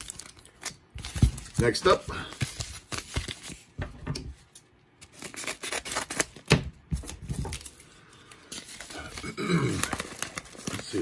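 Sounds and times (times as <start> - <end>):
padded mailer crinkling and tearing: 0.0 - 3.7, 5.1 - 6.5, 8.5 - 11.0.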